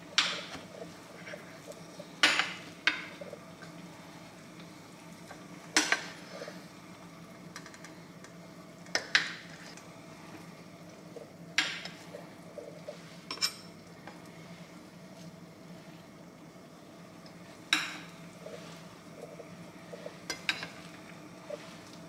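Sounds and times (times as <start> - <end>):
faint steady hum: 0.0 - 22.0
dishes and utensils clinking: 13.3 - 13.8.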